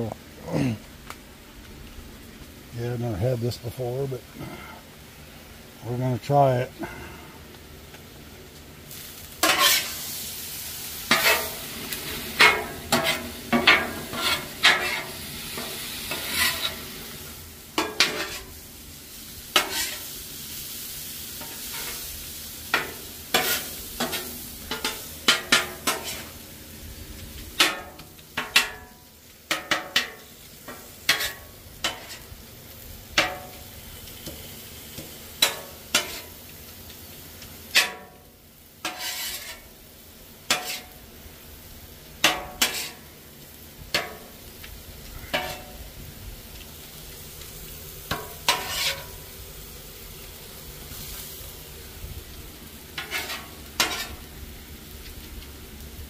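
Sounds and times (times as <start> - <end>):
meat sizzling on a griddle: 0.0 - 56.0
metal spatula scraping steel plate: 9.4 - 10.0, 11.1 - 11.6, 12.4 - 16.8, 17.8 - 18.6, 19.5 - 20.1, 22.8 - 26.3, 30.7 - 32.2, 35.4 - 36.3, 37.7 - 38.1, 38.8 - 39.6, 40.5 - 40.9, 42.2 - 43.0, 48.1 - 49.2, 53.0 - 54.2.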